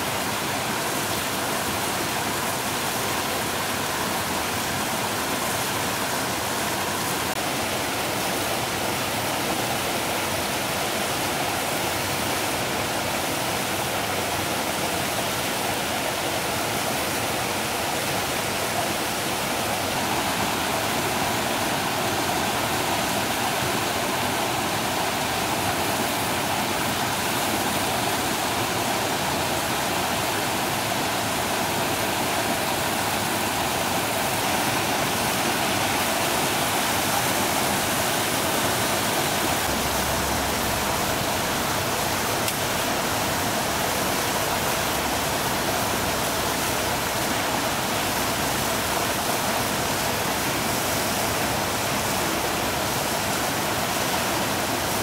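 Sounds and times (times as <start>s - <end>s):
river water rushing: 0.0s - 55.0s.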